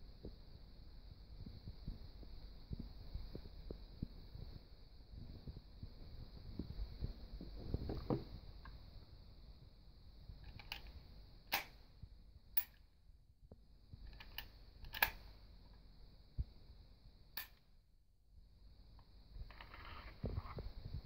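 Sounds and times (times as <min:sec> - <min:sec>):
pistol mechanism clicking: 0:11.5 - 0:11.8, 0:14.1 - 0:15.2.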